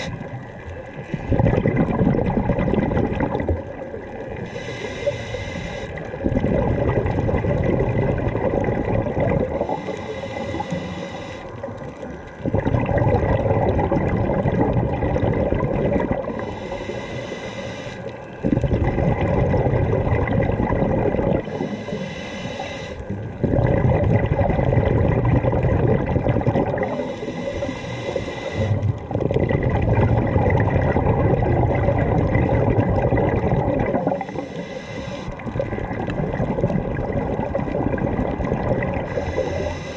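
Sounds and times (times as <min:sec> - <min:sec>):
bubbling exhaust underwater: 0:00.0 - 0:39.9
regulator hiss on inhale: 0:04.4 - 0:06.0, 0:09.6 - 0:11.8, 0:16.3 - 0:18.4, 0:21.4 - 0:23.1, 0:26.8 - 0:29.0, 0:34.1 - 0:35.5, 0:39.0 - 0:39.9.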